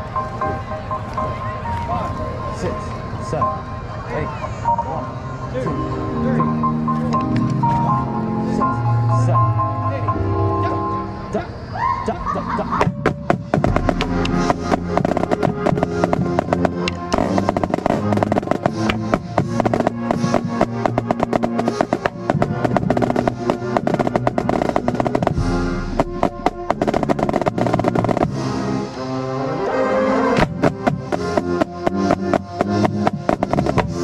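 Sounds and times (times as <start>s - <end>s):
wind instruments holding chords: 0.0s - 11.7s, 13.5s - 34.0s
snare drums rolling: 12.8s - 28.4s, 30.4s - 34.0s.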